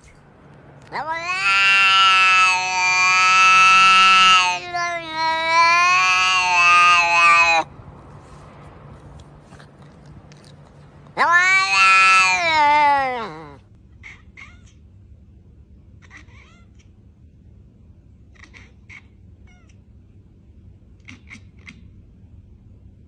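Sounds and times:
cat meowing loudly: 0.9s - 7.7s, 11.2s - 14.7s
cat chirping mews: 11.2s - 14.8s, 16.0s - 16.9s, 18.3s - 19.8s, 21.0s - 21.9s.

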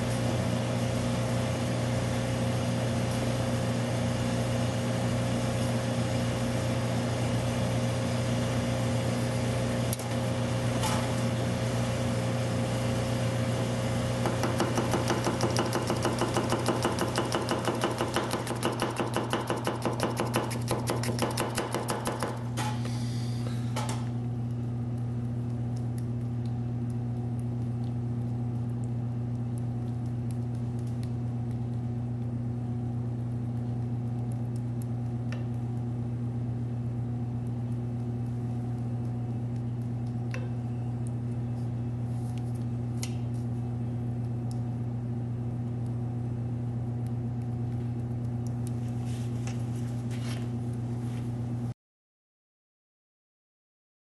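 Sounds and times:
steady low hum: 0.0s - 51.7s
knife slicing tomato: 18.0s - 22.3s.

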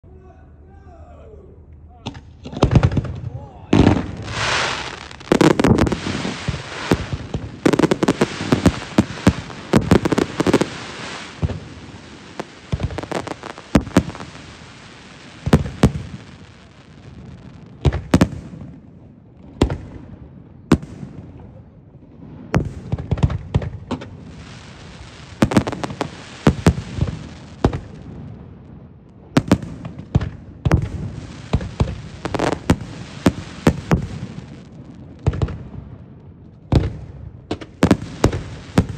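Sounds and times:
firework shells bursting with bangs: 3.8s - 18.8s, 22.6s - 28.2s, 29.4s - 35.8s, 36.7s - 38.9s
fireworks crackling: 3.8s - 21.4s, 22.4s - 35.8s, 36.7s - 38.9s.

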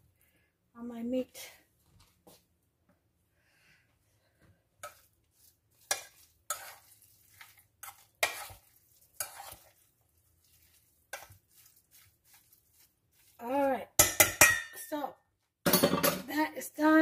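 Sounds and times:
hand squishing raw meat in bowl: 4.9s - 13.6s.

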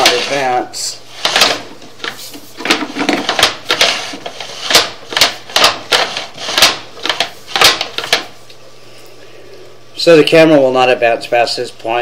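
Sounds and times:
push cable clacking and knocking: 1.2s - 8.3s.

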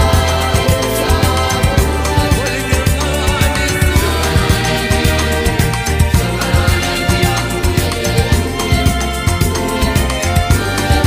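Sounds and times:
background music with beat: 0.0s - 11.0s.

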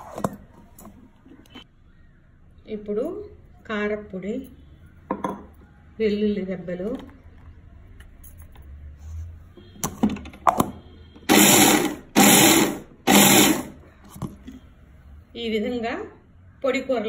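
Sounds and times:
mixer grinder grinding: 11.3s - 13.8s.

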